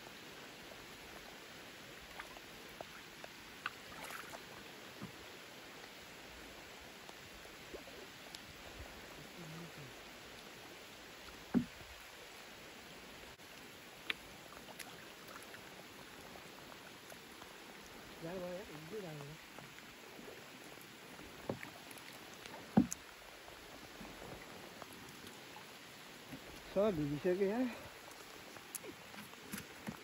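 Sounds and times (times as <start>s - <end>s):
rain on water: 0.0s - 30.0s
net dripping and knocking in boat: 11.2s - 12.2s, 18.8s - 30.0s.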